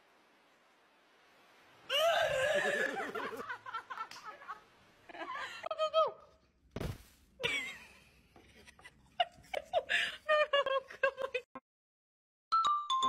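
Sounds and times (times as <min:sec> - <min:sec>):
dull thump: 0:06.8 - 0:07.2.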